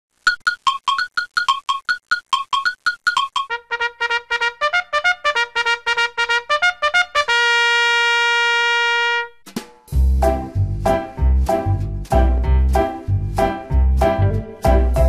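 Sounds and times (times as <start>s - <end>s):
trumpet-like notes: 3.5s - 9.4s.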